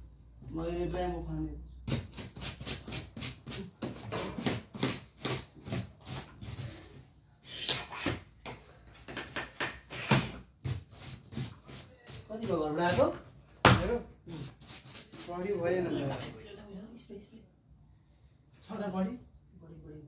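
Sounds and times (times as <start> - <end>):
mop on tiled floor: 10.0 - 13.1.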